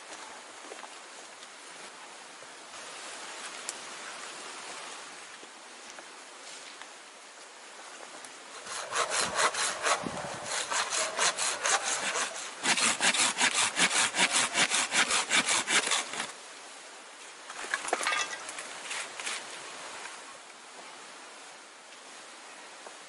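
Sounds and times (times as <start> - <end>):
hand saw cutting log: 8.5 - 16.3.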